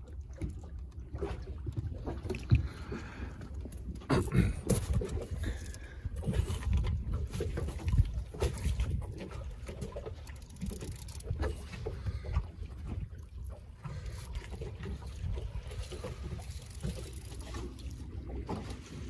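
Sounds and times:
waves lapping against hull: 0.0s - 19.0s
wind rumble on microphone: 4.3s - 16.5s.

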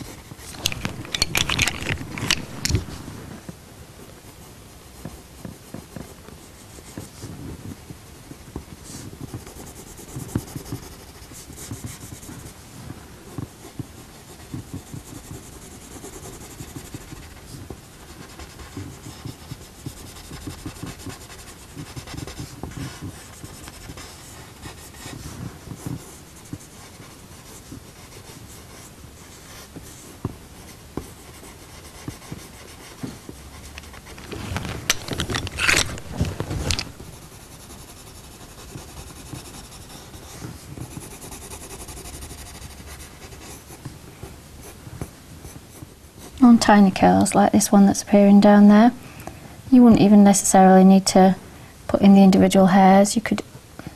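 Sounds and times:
pencil scratching on paper: 8.2s - 43.9s.

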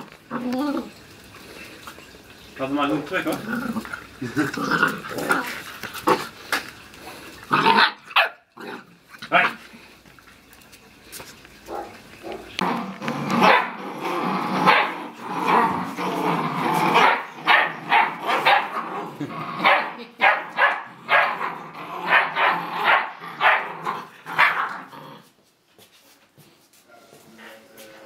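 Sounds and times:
puppies growling: 0.0s - 25.4s
puppies barking: 7.5s - 8.5s, 11.6s - 24.9s.

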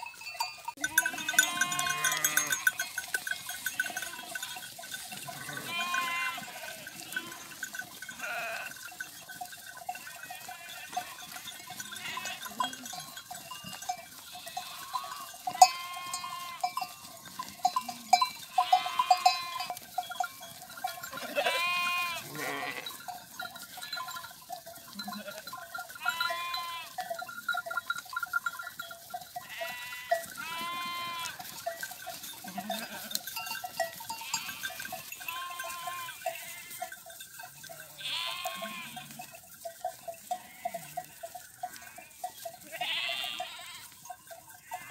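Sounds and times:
sheep bleating: 0.8s - 9.0s, 9.9s - 19.8s, 20.8s - 24.2s, 24.9s - 27.1s, 29.4s - 33.2s, 34.1s - 37.0s, 37.7s - 39.3s, 40.3s - 44.0s, 44.6s - 44.9s.

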